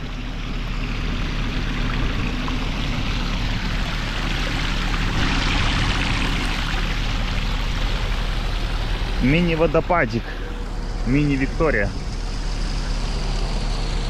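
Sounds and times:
small waterfall rushing: 0.0s - 14.0s.

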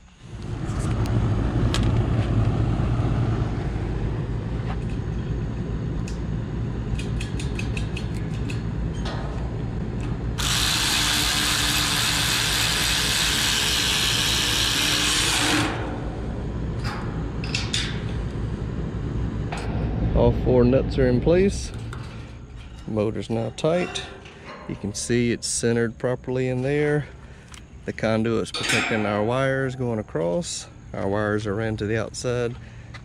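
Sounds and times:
steady low rumble: 0.0s - 12.1s, 15.5s - 33.0s
electric ratchet running: 10.4s - 15.9s.

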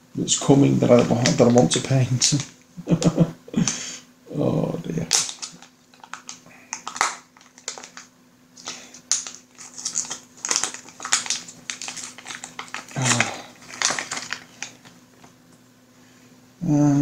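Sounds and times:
plastic bags crinkling: 5.0s - 15.5s.

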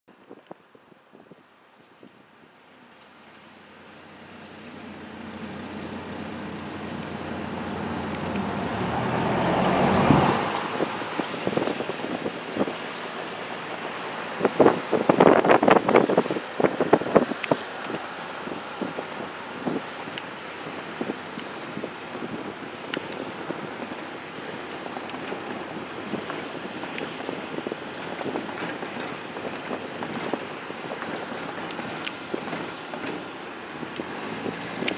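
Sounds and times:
background traffic: 0.1s - 34.9s
vehicle passing by: 7.0s - 18.9s.

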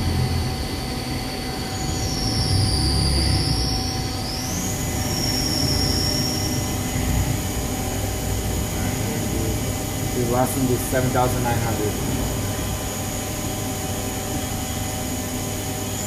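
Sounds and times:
low machine hum: 0.0s - 16.0s
machine spindle whine: 0.0s - 16.0s.

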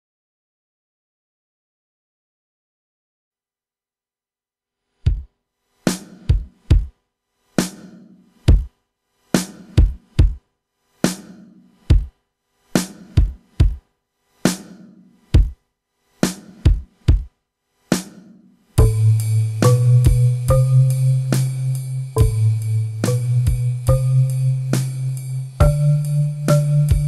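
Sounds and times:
drum machine beat: 5.1s - 5.3s, 5.9s - 7.0s, 7.6s - 8.8s, 9.4s - 10.4s, 11.0s - 12.2s, 12.8s - 13.9s, 14.5s - 15.6s, 16.2s - 27.0s.

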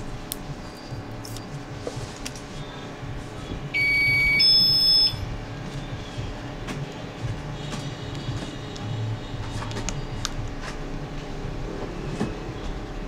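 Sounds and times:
electronic beep: 3.7s - 5.3s.

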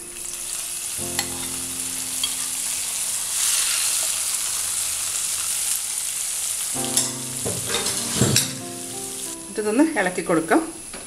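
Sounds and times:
hot ghee sizzling and hissing: 0.0s - 10.0s.

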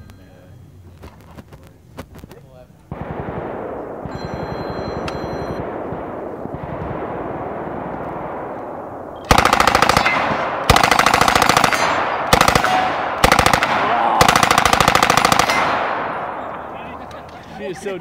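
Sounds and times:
gunfire echo: 2.9s - 17.6s
submachine gun full-auto bursts: 9.3s - 16.0s.

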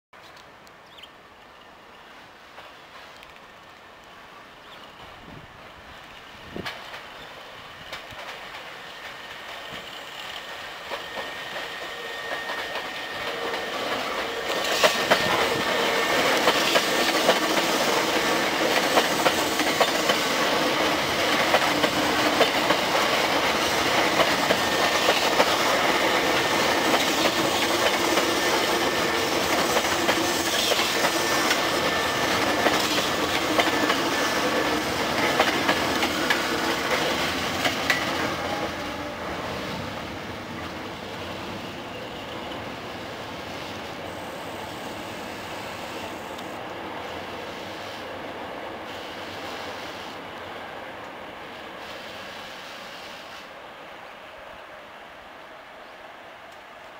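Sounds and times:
wheels clattering on rail joints: 6.1s - 39.9s.

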